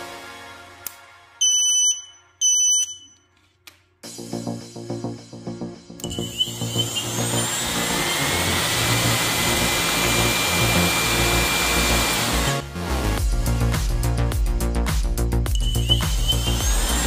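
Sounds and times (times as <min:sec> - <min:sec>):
electric motor whining: 0:06.0 - 0:12.6, 0:15.6 - 0:17.0.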